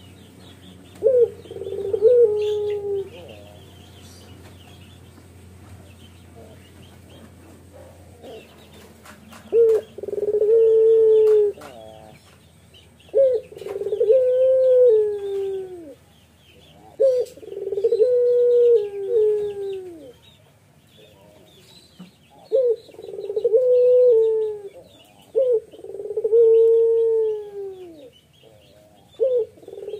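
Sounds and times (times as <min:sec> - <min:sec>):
small birds chirping: 0:00.0 - 0:29.9
dove cooing: 0:00.9 - 0:04.3, 0:05.9 - 0:12.2, 0:13.1 - 0:16.1, 0:16.7 - 0:20.2, 0:22.3 - 0:29.9.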